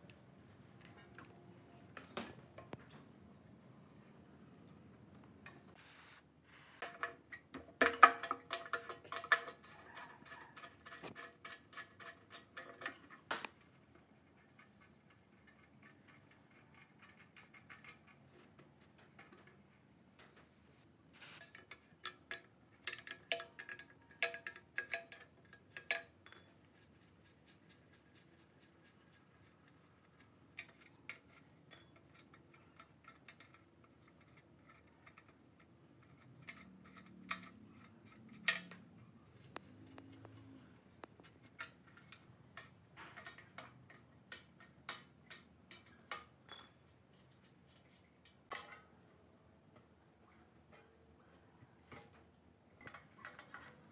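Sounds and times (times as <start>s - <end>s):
metal clinks and rattles: 22.0s - 26.8s, 31.7s - 33.6s, 45.7s - 47.3s.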